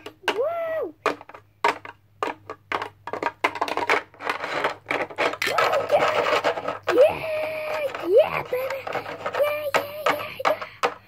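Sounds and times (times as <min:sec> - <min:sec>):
plastic toy pieces clicking: 0:00.0 - 0:11.0
child singing wordlessly: 0:06.9 - 0:10.6.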